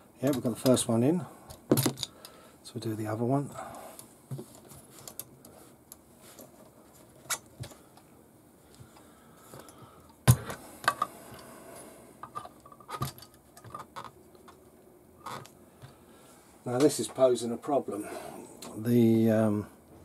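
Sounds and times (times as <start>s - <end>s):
plastic parts clicking and knocking: 1.5s - 2.2s, 12.2s - 14.6s.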